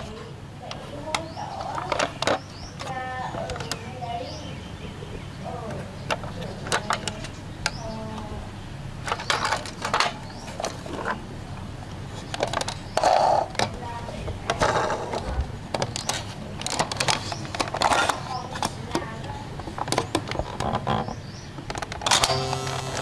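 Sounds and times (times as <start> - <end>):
plastic toy clicks and rattles: 6.1 - 7.8, 9.0 - 11.1, 14.5 - 19.1, 21.7 - 23.0
toy sliding door opening: 21.7 - 23.0.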